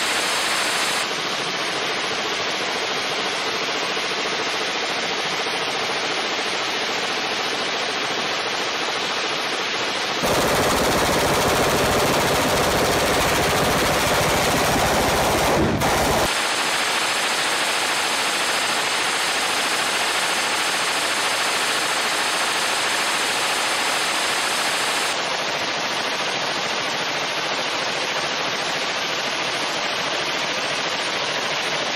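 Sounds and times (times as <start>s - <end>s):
suppressed machine gun bursts: 10.2s - 16.6s.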